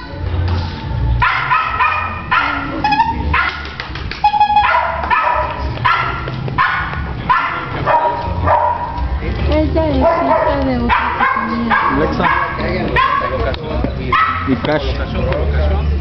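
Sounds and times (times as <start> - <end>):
dog barking: 1.2 - 3.8, 4.6 - 9.0, 10.0 - 13.5, 14.1 - 14.6.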